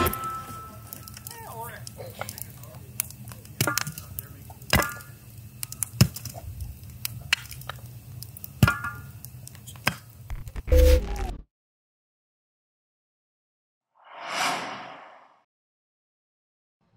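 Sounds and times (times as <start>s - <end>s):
wood fire crackling: 0.0s - 10.6s.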